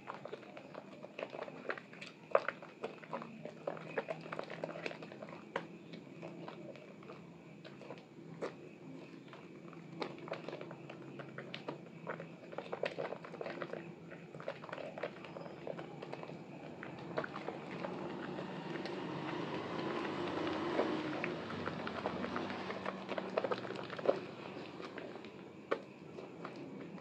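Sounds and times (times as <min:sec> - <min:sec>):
wet soap squelching: 0:00.0 - 0:27.0.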